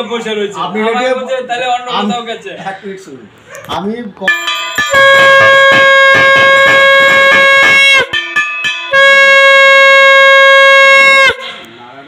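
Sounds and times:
hand bell ringing rapidly: 0:04.3 - 0:06.8
conch shell blasts: 0:04.3 - 0:11.7.

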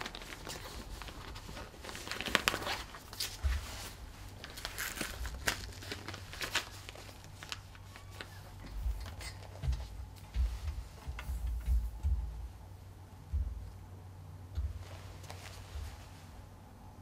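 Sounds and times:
fabric cuff rustling: 0:00.0 - 0:12.3, 0:14.6 - 0:16.4
hook-and-loop closure crackling: 0:00.0 - 0:12.4.

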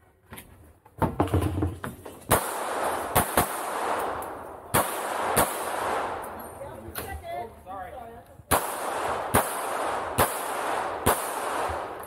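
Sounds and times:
pistol shots with echo: 0:02.3 - 0:06.6, 0:08.5 - 0:12.0.

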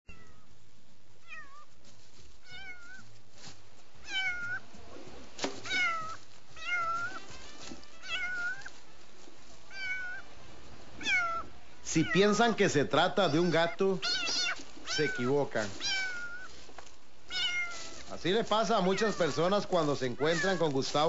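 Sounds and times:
man imitating cat meows: 0:11.9 - 0:16.2, 0:18.6 - 0:21.0.

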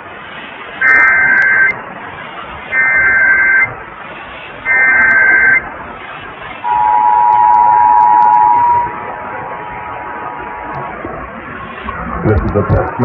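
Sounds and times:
radio hiss: 0:00.0 - 0:13.0
screeching data burst: 0:00.8 - 0:01.8, 0:02.7 - 0:03.8, 0:04.6 - 0:05.7, 0:06.6 - 0:11.2
two-tone alert signal: 0:04.7 - 0:05.6, 0:06.6 - 0:10.7.

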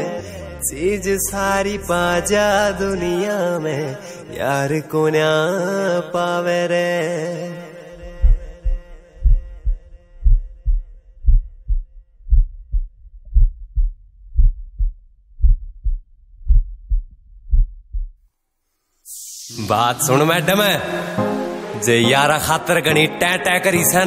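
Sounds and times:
heartbeat thumps: 0:08.0 - 0:18.2.

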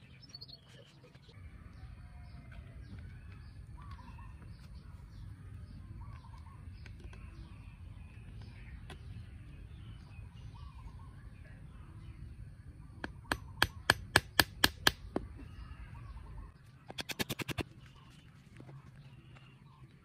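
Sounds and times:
hammer knocking on coconut shell: 0:13.0 - 0:15.0.

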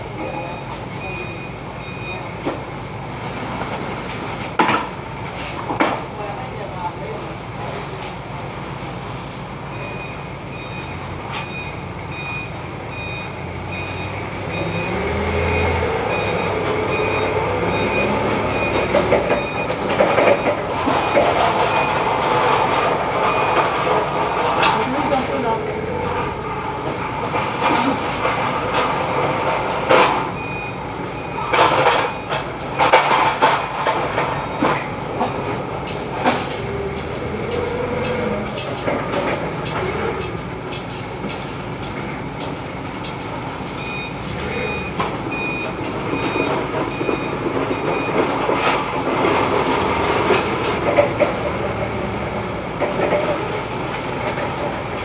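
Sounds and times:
forklift engine running: 0:00.0 - 0:55.0
reversing alarm beeps: 0:00.2 - 0:02.4, 0:09.7 - 0:22.1, 0:30.4 - 0:32.9, 0:43.8 - 0:48.4
metal clanks and knocks: 0:16.1 - 0:55.0.

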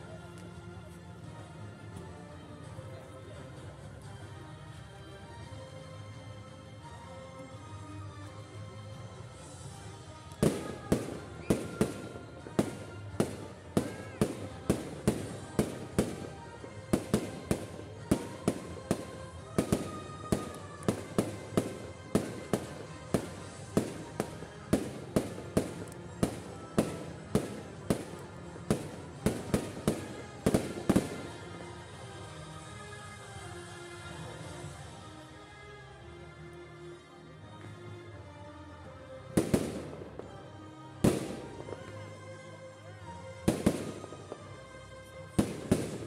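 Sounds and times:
music playing: 0:00.0 - 0:46.0.

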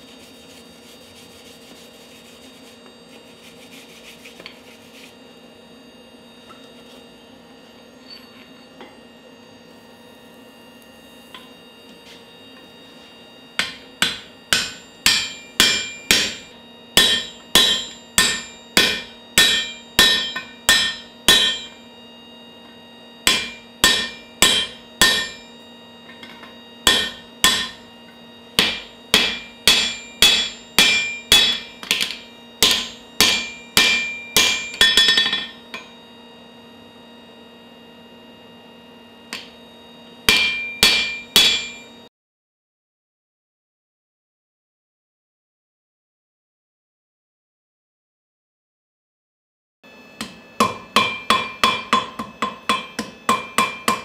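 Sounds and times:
hammer striking steel on anvil: 0:13.6 - 0:21.8, 0:23.2 - 0:25.6, 0:26.2 - 0:27.9, 0:28.5 - 0:36.0, 0:39.3 - 0:39.6, 0:40.2 - 0:42.0, 0:50.2 - 0:54.0.

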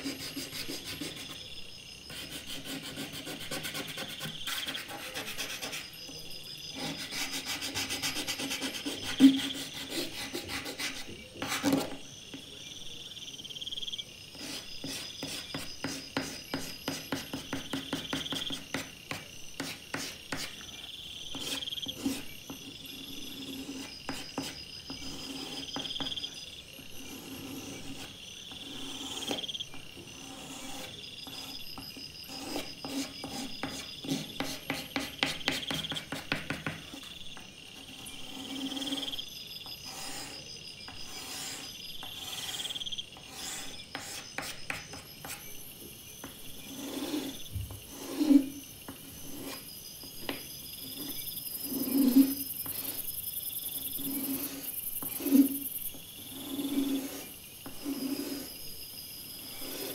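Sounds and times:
pastel stick scratching on sandpaper: 0:00.0 - 0:01.5, 0:02.1 - 0:06.0, 0:06.7 - 0:12.0, 0:14.4 - 0:18.9, 0:19.6 - 0:20.7, 0:21.3 - 0:22.4, 0:23.4 - 0:25.8, 0:27.0 - 0:29.5, 0:32.2 - 0:37.0, 0:39.8 - 0:45.5, 0:46.2 - 0:49.7, 0:50.8 - 0:53.2, 0:53.8 - 0:58.6, 0:59.4 - 0:59.9.

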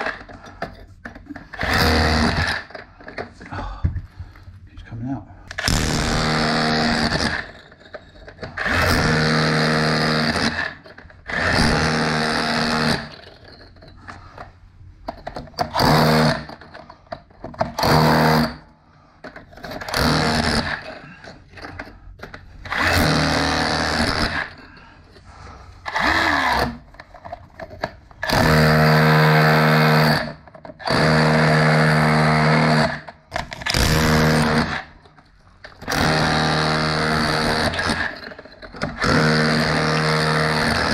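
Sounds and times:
hammer drill chipping brick: 0:00.0 - 0:00.5, 0:01.4 - 0:02.8, 0:05.5 - 0:13.7, 0:15.6 - 0:16.7, 0:17.6 - 0:18.6, 0:19.6 - 0:21.8, 0:22.6 - 0:24.6, 0:25.9 - 0:26.9, 0:28.2 - 0:35.0, 0:35.8 - 0:40.9.

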